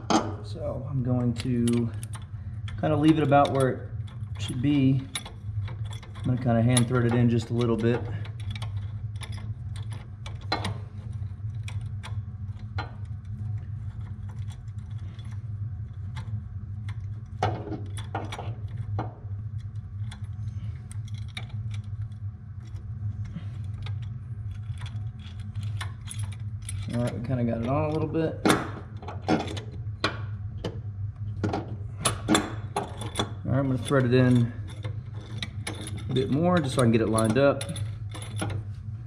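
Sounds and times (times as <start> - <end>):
steady low hum: 0.0 - 39.0
metal clicks and clinks: 1.2 - 10.8, 32.0 - 38.6.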